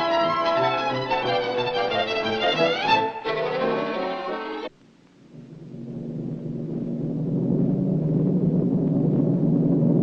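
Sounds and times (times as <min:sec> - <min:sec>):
low rumble: 0:05.2 - 0:10.0.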